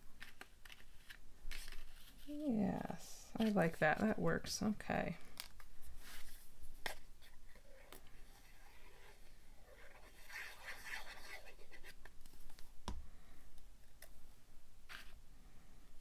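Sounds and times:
paper rubbing: 0:06.0 - 0:12.0.

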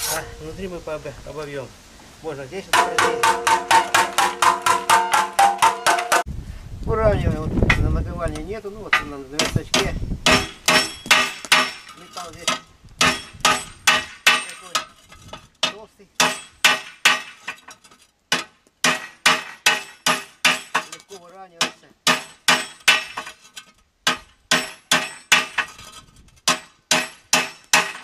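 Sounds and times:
hammer striking metal: 0:02.7 - 0:06.3, 0:08.9 - 0:15.0, 0:15.6 - 0:17.6, 0:18.3 - 0:21.0, 0:21.6 - 0:23.4, 0:24.1 - 0:25.7, 0:26.5 - 0:28.0.

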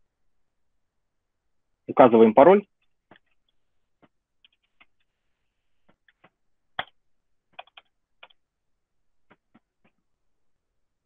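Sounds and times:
keyboard keys typing: 0:05.9 - 0:08.5.

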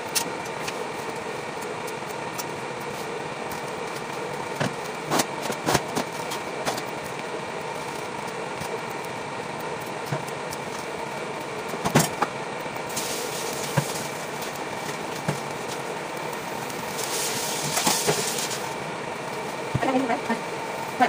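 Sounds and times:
mechanical hum with tones: 0:00.0 - 0:21.0.

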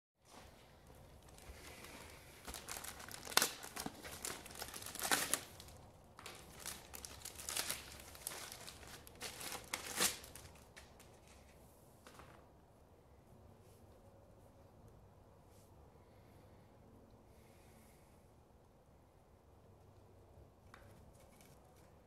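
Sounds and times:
plastic packaging crinkling: 0:01.2 - 0:11.5.

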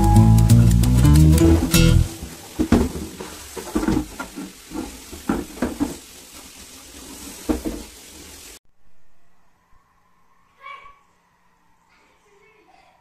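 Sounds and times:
steady water hiss: 0:00.5 - 0:08.6.

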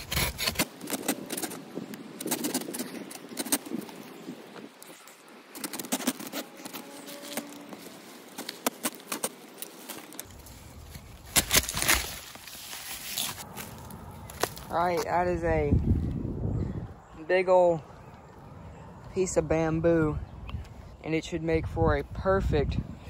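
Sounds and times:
saw rasping through cane: 0:00.0 - 0:01.6
rustling: 0:04.6 - 0:15.1.

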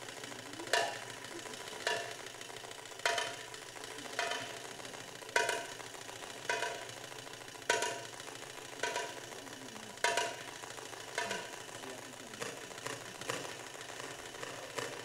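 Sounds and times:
sharp drum strikes: 0:10.0 - 0:10.5.

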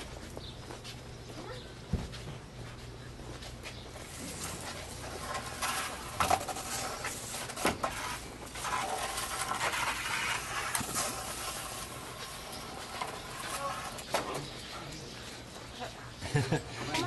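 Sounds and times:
dog scraping wooden stick: 0:04.0 - 0:14.5.

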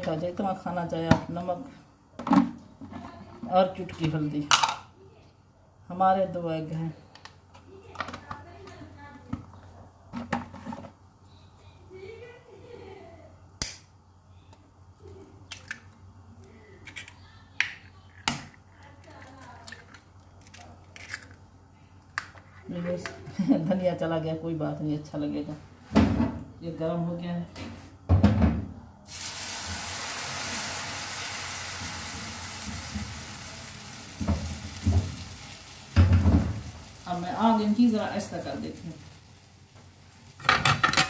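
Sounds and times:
batter sizzling in frying pan: 0:29.1 - 0:41.0.

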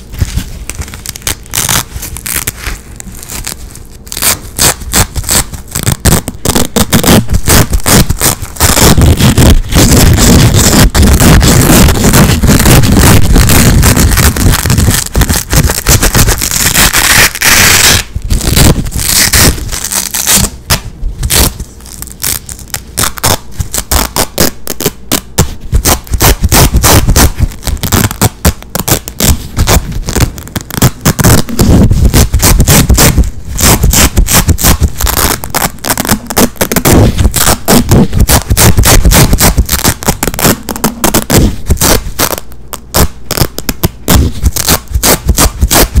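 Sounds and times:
velcro straps ripping: 0:00.0 - 0:46.0.

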